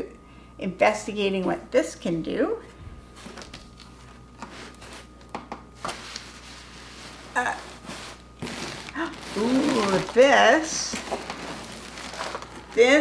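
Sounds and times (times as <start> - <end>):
packaging rustling and clicking: 8.2 - 13.0.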